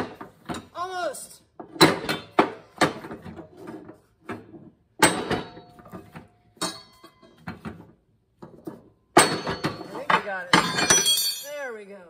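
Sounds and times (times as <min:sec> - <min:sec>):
metal clanks and scrapes: 0:01.7 - 0:11.4
metallic ring: 0:10.6 - 0:11.7.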